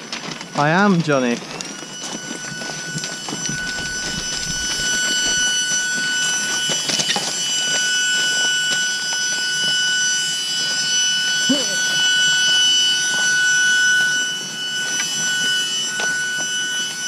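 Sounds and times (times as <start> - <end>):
bicycles rattling over gravel: 0.0 - 8.4
footsteps on loose gravel: 0.0 - 9.3
high-pitched whistling tone: 0.0 - 17.0.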